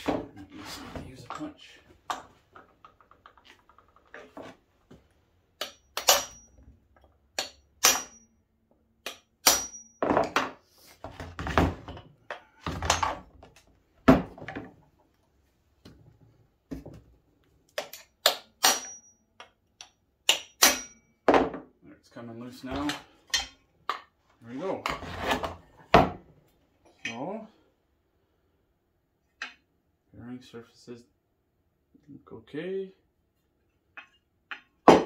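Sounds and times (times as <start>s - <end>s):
hammer striking metal punch: 5.6s - 6.6s, 7.4s - 8.3s, 9.0s - 10.0s, 17.8s - 19.2s, 20.3s - 21.1s.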